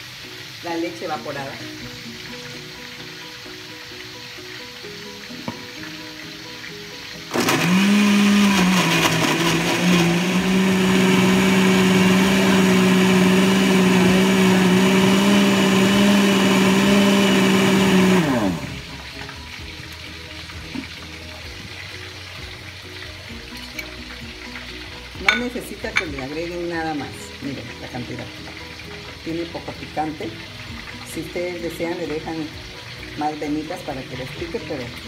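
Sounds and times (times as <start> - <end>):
blender motor running: 7.2 - 19.1.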